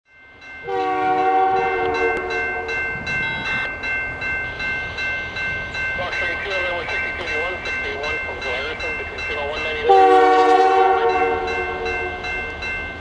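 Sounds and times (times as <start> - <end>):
high steady tones: 0.1 - 13.0
locomotive air horn blast: 0.6 - 2.7, 9.8 - 12.4.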